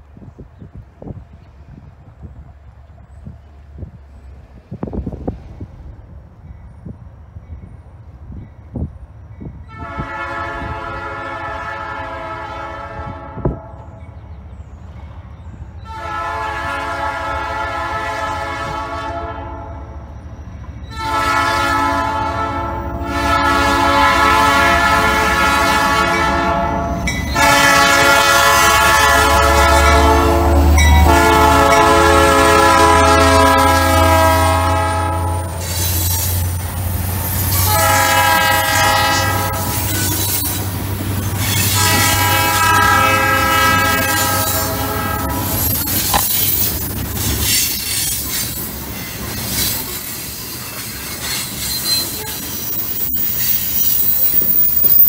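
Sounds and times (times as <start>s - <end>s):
locomotive engine rumble: 0.0s - 55.0s
train horn blasts: 9.7s - 14.0s, 15.8s - 20.0s, 20.9s - 35.9s, 37.5s - 40.4s, 41.5s - 46.8s, 51.8s - 52.6s.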